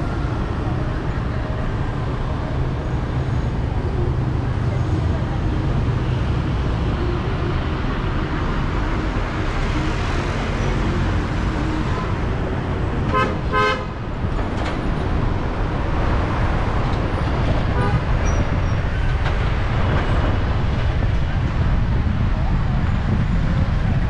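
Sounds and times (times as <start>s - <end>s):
road traffic rumble: 0.0s - 24.0s
car horn honking: 13.1s - 14.0s.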